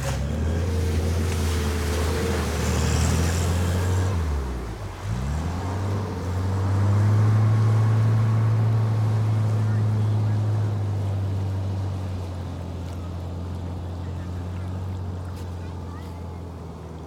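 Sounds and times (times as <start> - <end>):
car engine running: 0.0 - 17.0
water splashing: 0.0 - 17.0.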